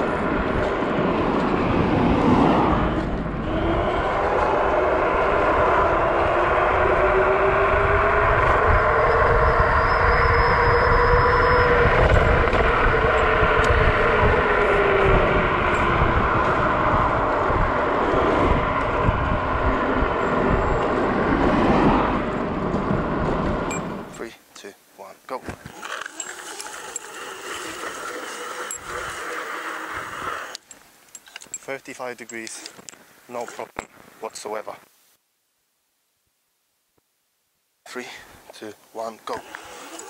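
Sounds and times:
wind rumble on microphone: 0:00.0 - 0:24.2
electric scooter motor whining: 0:02.9 - 0:24.0, 0:25.6 - 0:30.7, 0:39.2 - 0:40.0.

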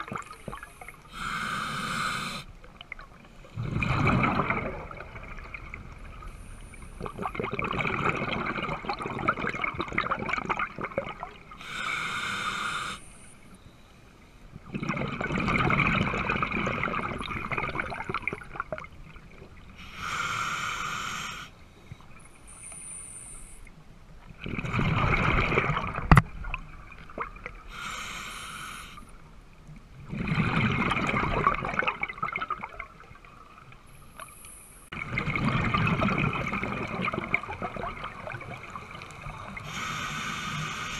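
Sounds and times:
diver breathing through regulator: 0:00.6 - 0:02.5, 0:11.6 - 0:13.3, 0:19.8 - 0:21.6, 0:27.7 - 0:29.1, 0:39.5 - 0:40.9
exhaled bubbles rushing: 0:03.6 - 0:11.4, 0:14.7 - 0:19.3, 0:24.4 - 0:27.6, 0:30.0 - 0:33.0, 0:35.0 - 0:39.6.

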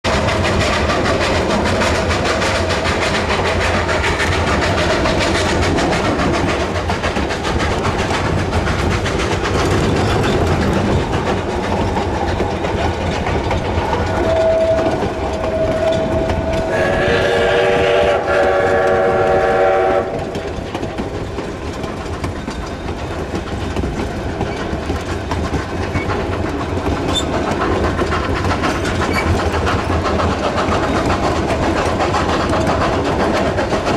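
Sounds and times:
train wheels rumbling on rails: 0:00.0 - 0:33.9
steam whistle: 0:14.0 - 0:20.4.

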